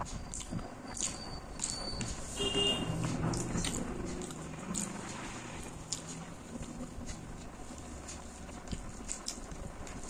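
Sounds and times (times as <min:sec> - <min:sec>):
fingers mixing rice and curry: 0:03.0 - 0:10.0.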